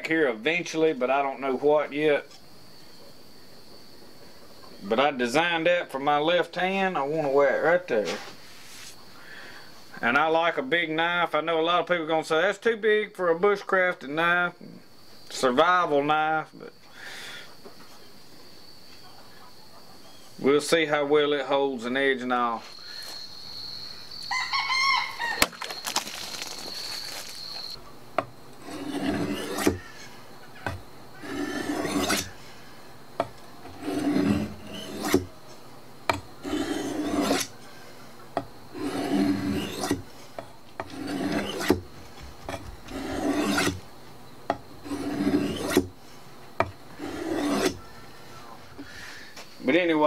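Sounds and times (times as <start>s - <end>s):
knife scraping on sharpening stone: 28.6s - 30.0s, 31.2s - 32.4s, 33.7s - 35.3s, 36.4s - 37.5s, 38.8s - 40.0s, 40.8s - 41.8s, 42.9s - 43.8s, 44.8s - 45.9s, 47.0s - 47.8s.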